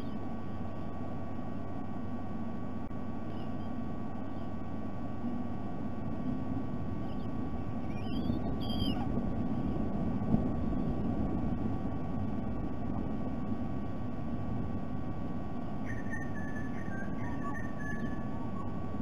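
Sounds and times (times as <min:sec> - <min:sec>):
faint electrical whine: 0:00.0 - 0:19.0
low outdoor rumble: 0:00.0 - 0:19.0
bird whistled call: 0:07.1 - 0:09.0, 0:15.8 - 0:18.7.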